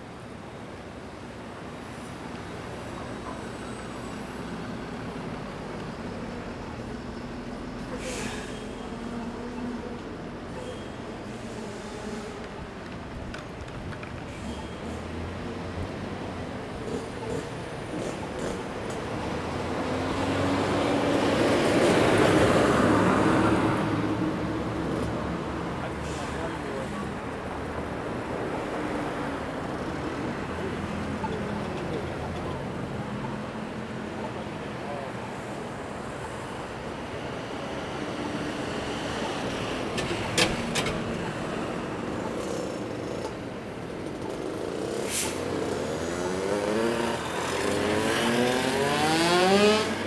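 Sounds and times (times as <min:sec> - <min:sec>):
city street traffic: 0:00.0 - 0:50.0
vehicle passing close by: 0:44.9 - 0:50.0.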